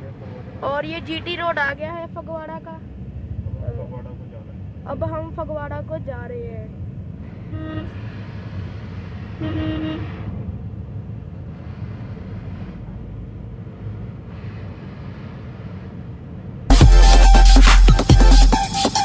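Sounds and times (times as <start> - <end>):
car engine and road rumble: 0.0 - 19.0
vehicle horn honking: 7.4 - 8.2, 9.3 - 10.3.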